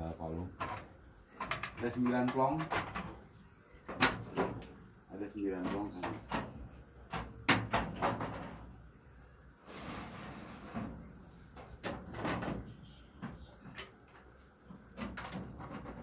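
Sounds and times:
metal tray sliding: 0:09.6 - 0:11.0.

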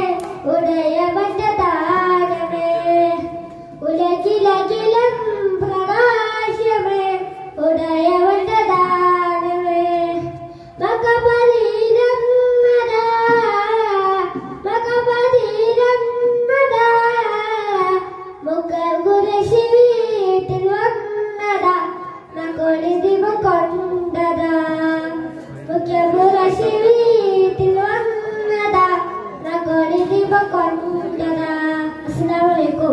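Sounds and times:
boy singing into a microphone: 0:00.0 - 0:32.9
breaths between phrases: 0:10.4 - 0:10.8.

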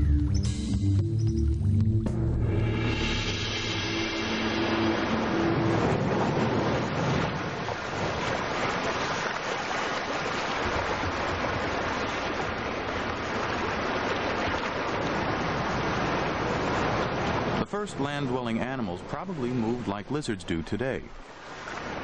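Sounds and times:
background music: 0:00.0 - 0:06.7
ocean surf: 0:02.6 - 0:22.0.

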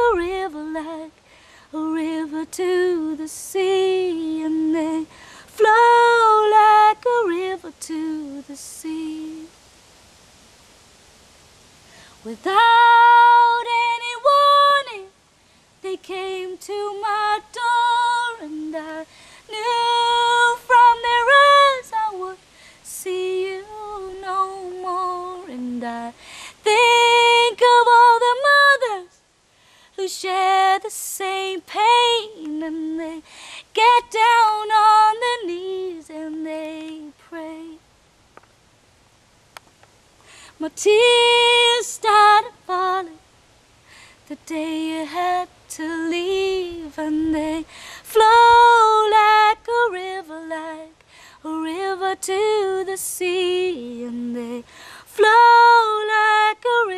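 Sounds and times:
short breaths: 0:01.2 - 0:01.8, 0:05.1 - 0:05.5, 0:11.8 - 0:12.2, 0:19.1 - 0:19.5, 0:22.4 - 0:22.9, 0:26.2 - 0:26.6, 0:29.4 - 0:30.0, 0:33.2 - 0:33.7, 0:40.2 - 0:40.6, 0:43.8 - 0:44.2, 0:47.7 - 0:48.1, 0:51.0 - 0:51.4, 0:54.7 - 0:55.1.

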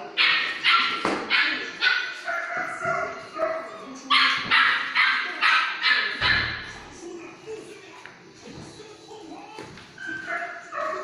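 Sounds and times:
dog yapping: 0:00.2 - 0:06.6.

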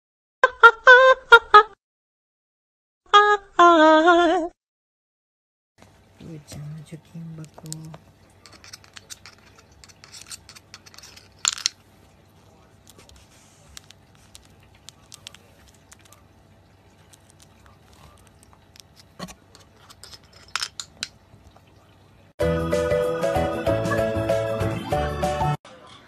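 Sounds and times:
light clicks and scratches: 0:07.4 - 0:11.8, 0:12.4 - 0:16.3, 0:17.0 - 0:21.7.

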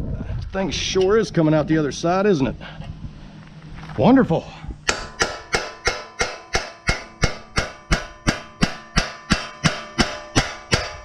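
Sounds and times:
hammer striking metal: 0:04.8 - 0:11.0
metal ringing: 0:04.8 - 0:11.0.

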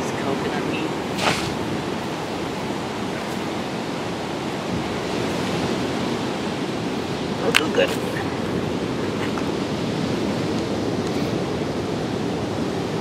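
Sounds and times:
ocean surf breaking on shore: 0:00.0 - 0:13.0.

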